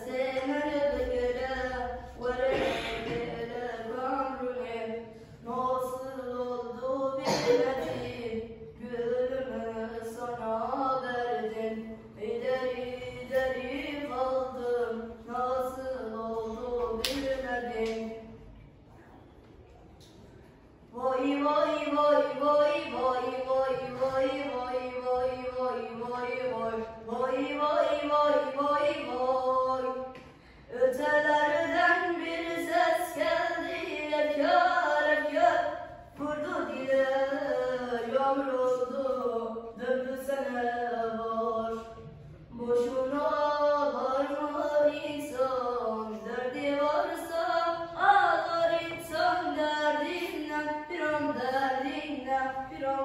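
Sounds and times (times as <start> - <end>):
boy singing unaccompanied: 30.7 - 53.0.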